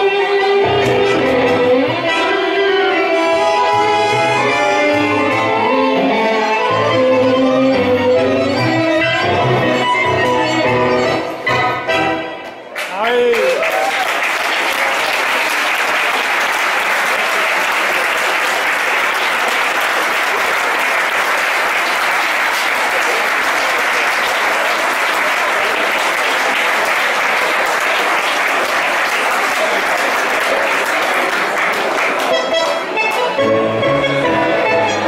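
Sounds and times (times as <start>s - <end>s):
audience applauding: 12.8s - 33.3s.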